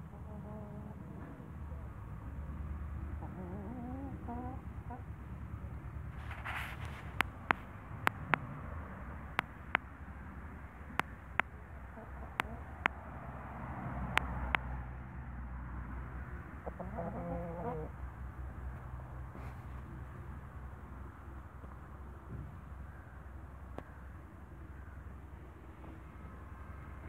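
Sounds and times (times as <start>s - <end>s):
chicken clucking: 0.0s - 1.5s, 3.2s - 5.1s, 11.8s - 12.9s, 16.5s - 18.0s.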